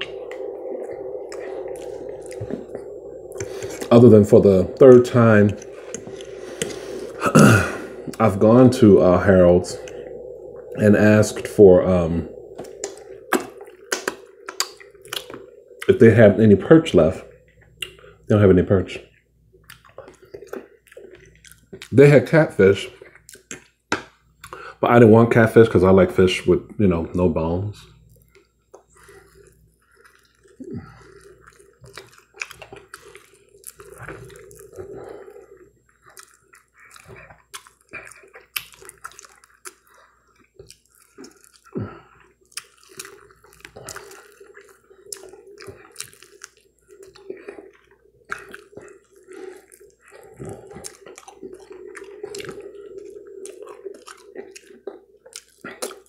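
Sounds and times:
wet mouth clicks and smacks: 12.5s - 15.9s, 19.6s - 21.9s, 23.1s - 23.7s, 28.2s - 34.7s, 36.0s - 41.8s, 42.4s - 56.0s
chewing and biting food: 28.2s - 56.0s.

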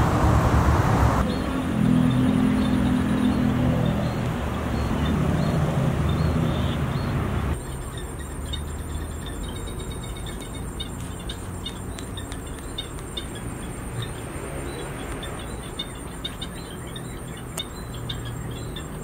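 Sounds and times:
low steady rumble: 0.0s - 1.2s
insects whining: 0.0s - 19.0s.

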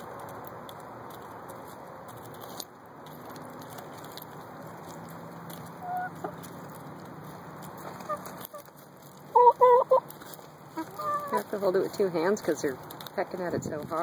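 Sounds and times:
hens pecking corn cob: 0.0s - 14.0s
hen clucking: 5.8s - 6.6s, 7.8s - 11.7s.

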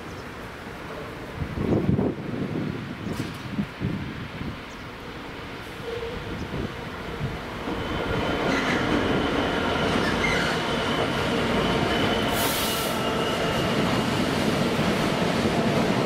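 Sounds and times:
diesel locomotive passing: 0.4s - 16.0s
wagons rumbling over rails: 4.3s - 16.0s
brief hiss: 12.3s - 13.0s.

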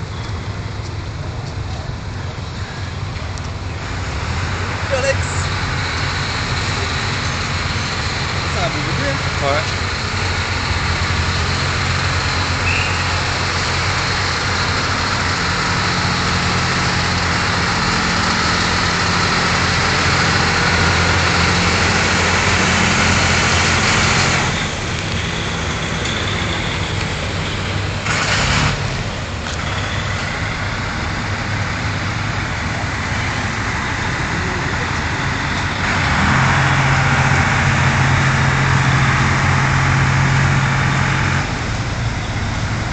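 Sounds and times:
traffic hum: 0.0s - 42.9s
truck diesel engine droning: 0.0s - 42.9s.

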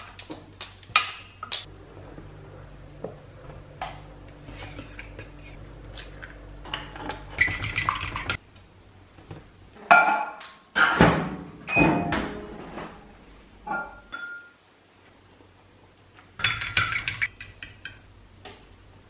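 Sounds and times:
fork beating egg in bowl: 4.4s - 6.3s, 7.4s - 8.4s, 16.4s - 18.0s.

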